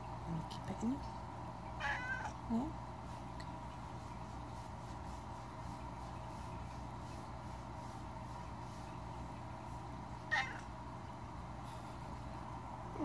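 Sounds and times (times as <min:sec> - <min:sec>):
cat meowing: 0:01.8 - 0:02.4, 0:10.3 - 0:10.7.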